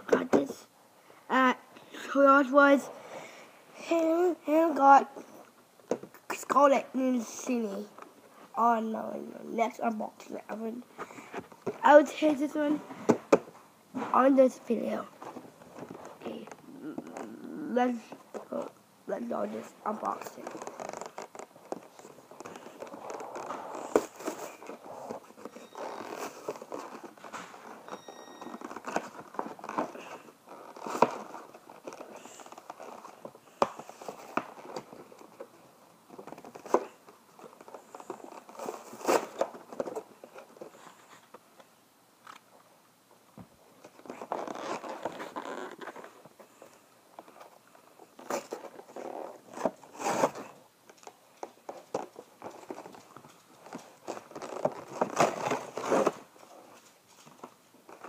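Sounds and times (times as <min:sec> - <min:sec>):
plastic packaging crinkling and tearing: 0:43.9 - 0:46.2, 0:53.6 - 0:56.3.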